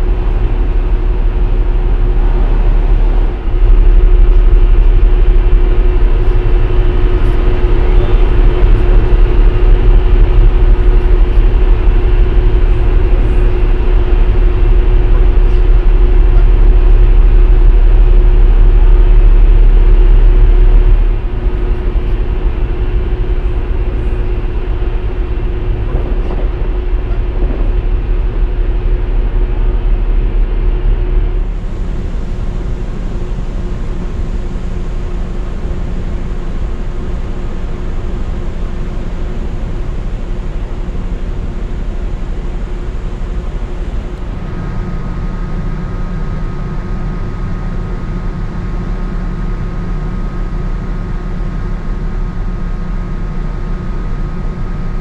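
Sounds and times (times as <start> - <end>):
ship machinery hum: 0.0 - 55.0
water rushing from hull: 0.0 - 55.0
wind: 0.0 - 55.0.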